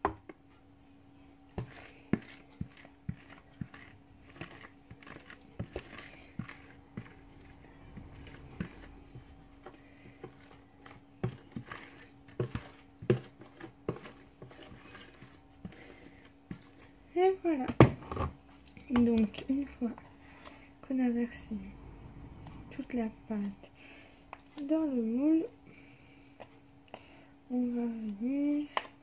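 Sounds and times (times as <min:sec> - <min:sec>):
faint steady hum: 0:00.0 - 0:29.0
wooden spoon scraping plastic bowl: 0:01.6 - 0:20.6.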